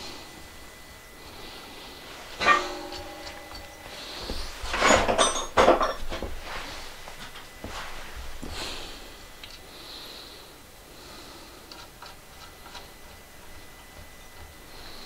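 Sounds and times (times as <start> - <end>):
faint high-pitched tone: 0.0 - 6.0.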